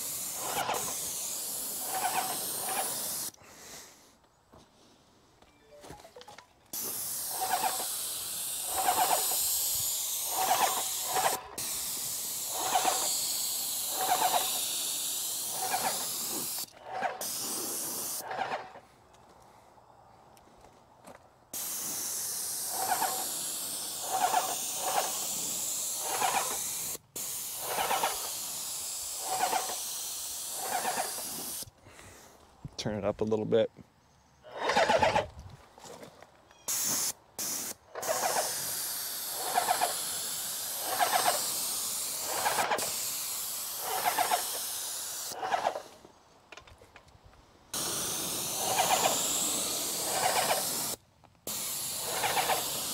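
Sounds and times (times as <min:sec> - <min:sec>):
pulsing pump: 0:00.0 - 0:03.4, 0:06.8 - 0:18.8, 0:21.6 - 0:31.6, 0:34.5 - 0:35.3, 0:37.9 - 0:45.9, 0:47.8 - 0:52.9
spray gun hissing: 0:00.0 - 0:03.9, 0:06.7 - 0:18.2, 0:21.6 - 0:31.7, 0:36.7 - 0:45.9, 0:47.7 - 0:52.9.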